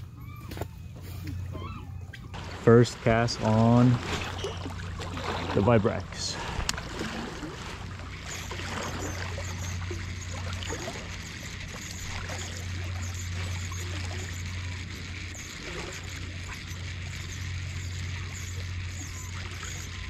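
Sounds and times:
small waves lapping on rocks: 0:02.4 - 0:12.8.

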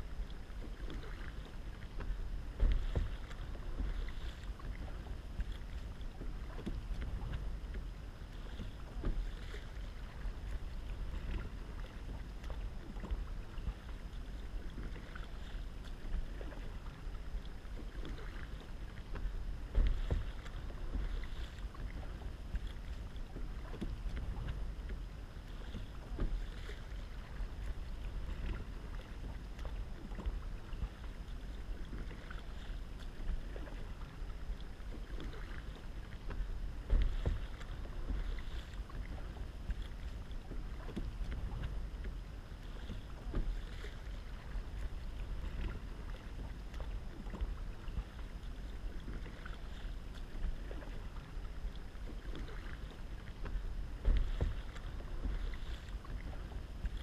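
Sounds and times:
paddle strokes splashing: 0:00.0 - 0:57.0
steady low rumble: 0:00.0 - 0:57.0
water running along hull: 0:00.0 - 0:57.0.

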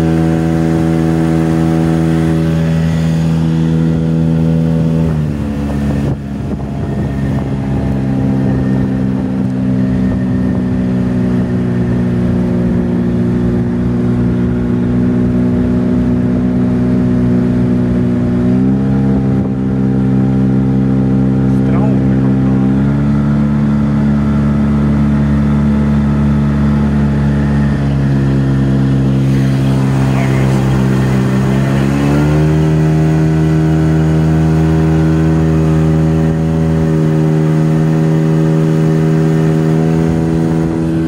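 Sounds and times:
outboard motor running: 0:00.0 - 0:41.0.

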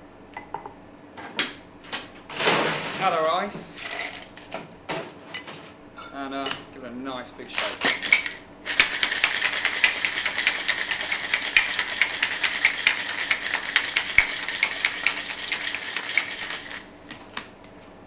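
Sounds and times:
ice rattling in cocktail shaker: 0:07.5 - 0:17.4.

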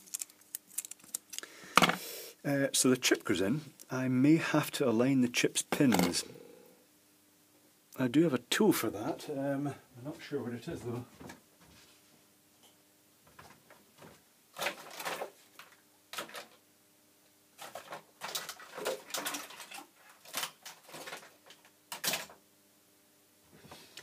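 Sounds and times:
faint steady hum: 0:00.0 - 0:24.0
tools and parts clattering: 0:17.6 - 0:22.4.

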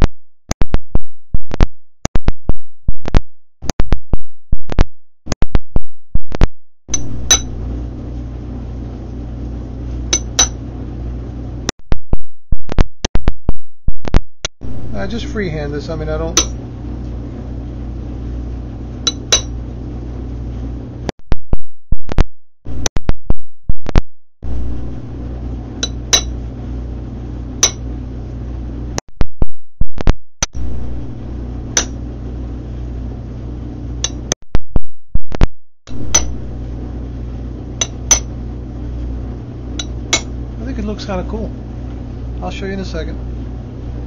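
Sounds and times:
steady low hum: 0:06.3 - 0:11.7, 0:12.6 - 0:21.1, 0:23.9 - 0:29.0, 0:29.9 - 0:34.4, 0:35.4 - 0:44.0
hammer tapping metal punch: 0:06.9 - 0:07.6, 0:10.2 - 0:10.6, 0:19.1 - 0:19.6, 0:25.8 - 0:26.4, 0:27.6 - 0:27.8, 0:37.8 - 0:38.3, 0:39.8 - 0:40.3.

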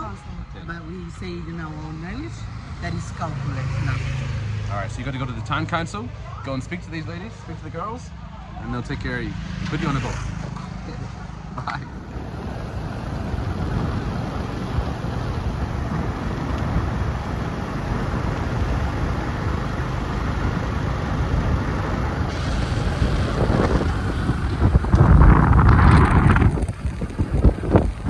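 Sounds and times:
wind buffeting microphone: 0:08.5 - 0:28.0.

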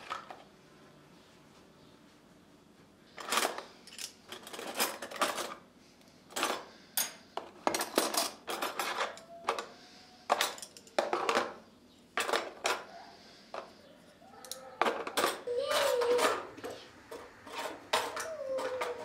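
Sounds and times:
metal utensils clattering: 0:03.2 - 0:05.6, 0:06.3 - 0:09.7, 0:10.3 - 0:11.6, 0:12.2 - 0:12.9, 0:14.4 - 0:19.0.

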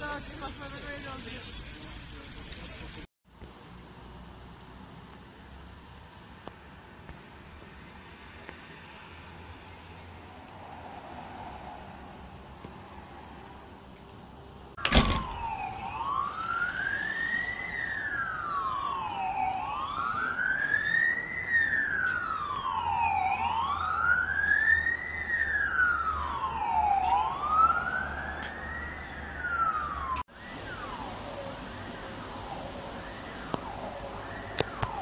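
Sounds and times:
emergency siren wailing: 0:14.8 - 0:35.0.

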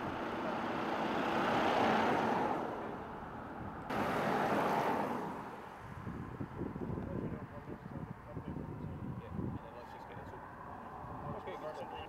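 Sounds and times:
car passing on road: 0:00.0 - 0:07.5.

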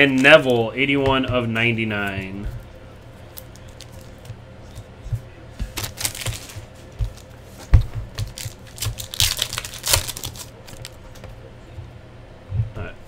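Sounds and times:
foil wrapper crinkling and tearing: 0:03.3 - 0:04.3, 0:05.7 - 0:07.3, 0:08.3 - 0:11.0.

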